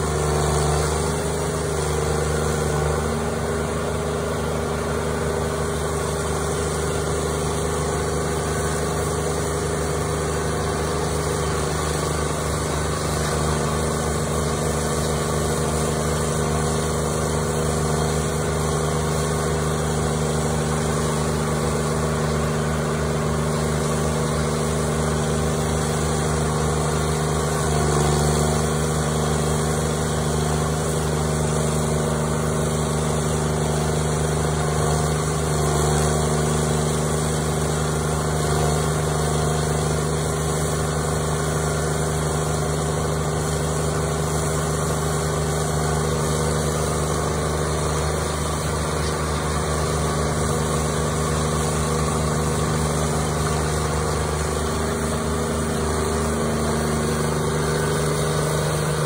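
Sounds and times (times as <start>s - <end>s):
stump grinder engine running: 0.0s - 59.0s.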